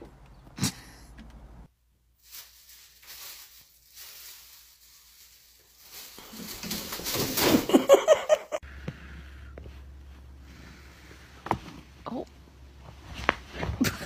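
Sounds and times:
plastic bag rustling: 2.1 - 8.1.

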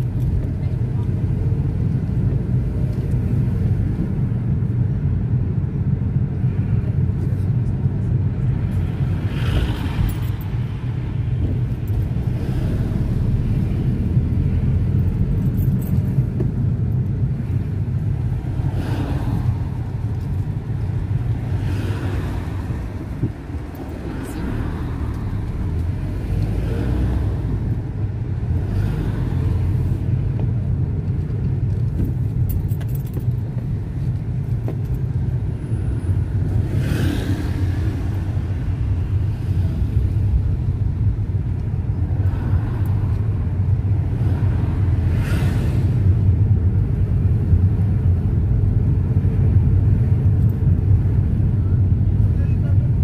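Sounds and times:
car engine and tyre rumble: 0.0 - 53.0
passing traffic swooshes: 8.3 - 30.8, 35.1 - 51.4.

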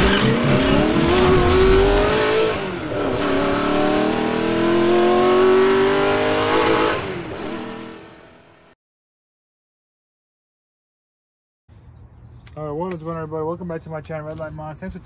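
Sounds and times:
car engine accelerating hard: 0.0 - 8.7.

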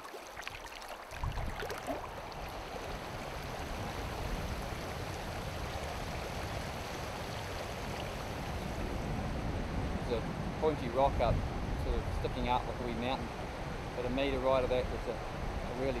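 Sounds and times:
river water rippling over stones: 0.0 - 8.8.

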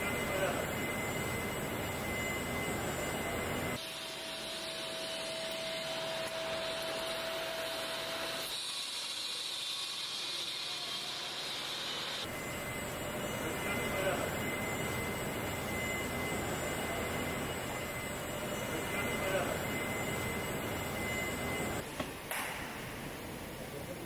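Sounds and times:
steady machine whine: 0.0 - 24.0
hiss of air and machinery: 3.7 - 17.4.

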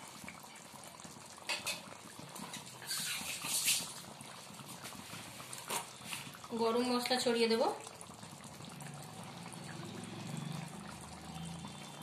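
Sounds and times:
curry bubbling in a pan: 0.0 - 12.0
hissing and spluttering: 2.4 - 4.2.

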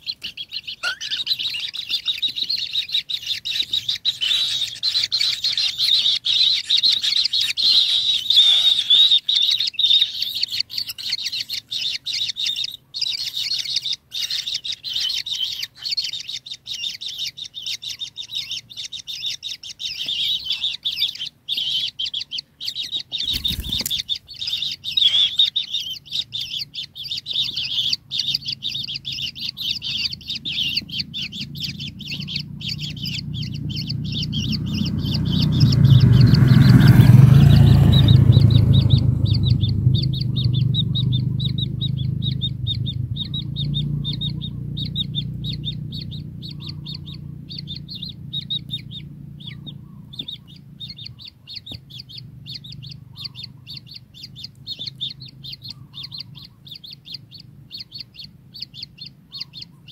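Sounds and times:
nestlings chittering begging calls: 0.0 - 59.9
low rumble: 28.5 - 49.9.

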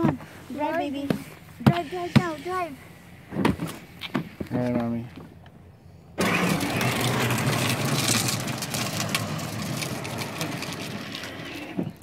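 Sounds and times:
stroller wheels rolling on asphalt: 6.2 - 12.0.

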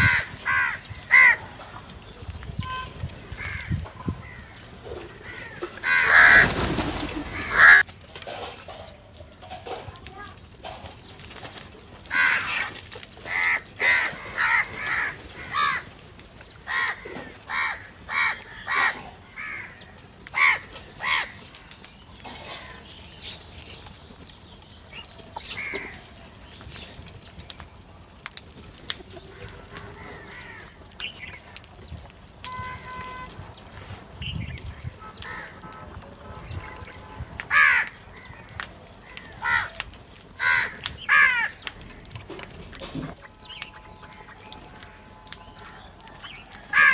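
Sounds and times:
crows cawing: 0.0 - 1.6, 3.3 - 7.9, 12.0 - 16.0, 16.6 - 21.6, 25.4 - 26.2, 29.2 - 31.0, 35.1 - 35.8, 37.5 - 41.7, 45.6 - 46.9.

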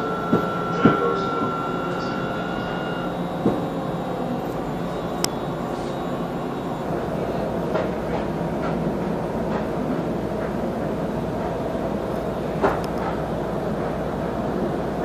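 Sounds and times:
high thin tone: 0.0 - 7.5
tram running noise: 0.0 - 15.0.

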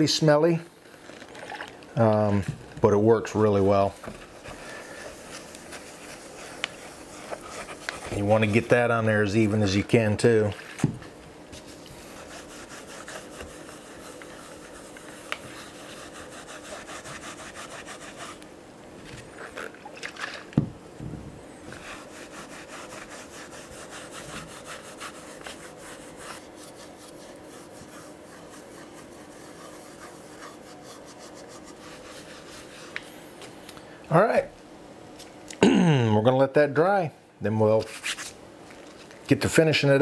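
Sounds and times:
pad scrubbing leather: 11.6 - 18.4, 21.7 - 33.0.

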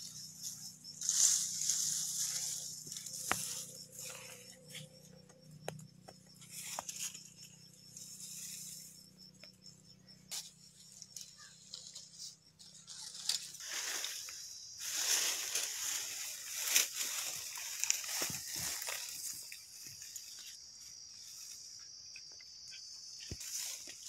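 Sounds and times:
rustling: 0.0 - 5.2.

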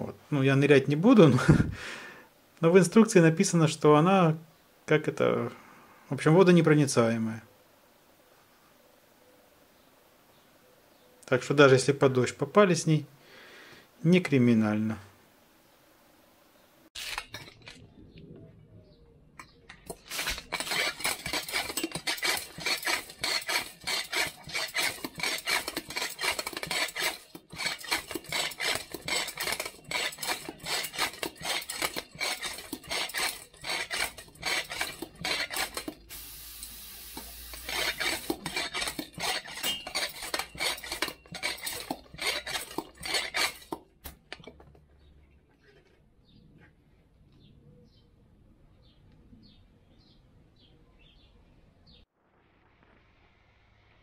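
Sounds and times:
clatter of small hard objects: 19.8 - 36.1.

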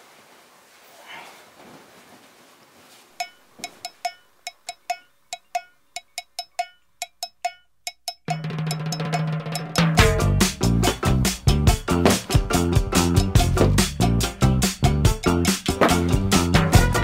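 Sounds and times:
faint hiss: 0.0 - 4.1
wood block tapping rhythm: 3.2 - 17.0.

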